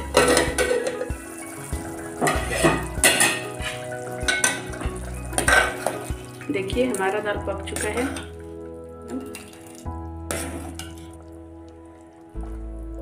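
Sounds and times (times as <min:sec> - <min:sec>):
metal lid clattering on pot: 0:00.0 - 0:01.2, 0:02.2 - 0:04.8, 0:05.4 - 0:06.1.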